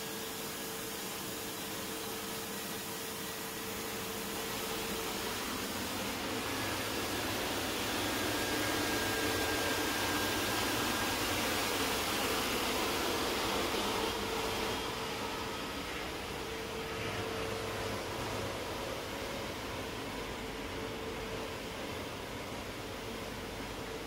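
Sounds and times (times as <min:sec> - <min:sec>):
faint hum tones: 0:00.0 - 0:24.0
machine whir and hiss: 0:00.0 - 0:24.0.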